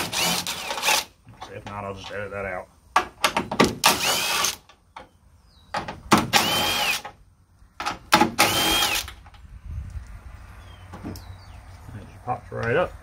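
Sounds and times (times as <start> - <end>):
cordless power driver whine: 8.4 - 9.1.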